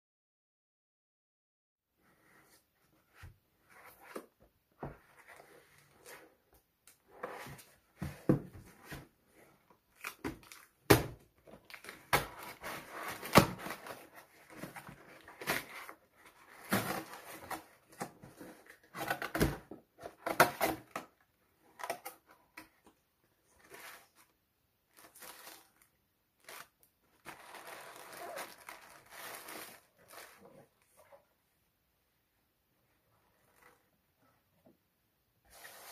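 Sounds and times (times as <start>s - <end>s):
plastic packing rustling: 24.9s - 30.9s.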